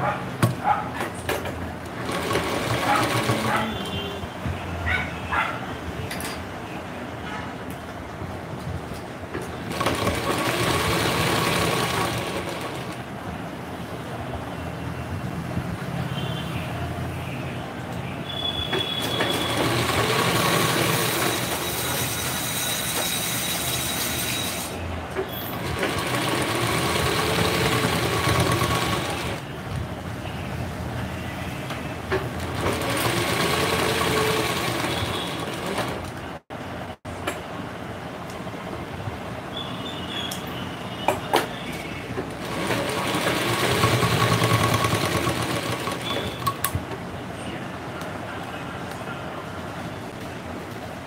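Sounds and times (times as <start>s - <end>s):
sewing machine motor: 2.0s - 3.9s, 9.7s - 13.0s, 18.9s - 24.8s, 25.5s - 29.4s, 32.4s - 36.1s, 42.4s - 46.7s.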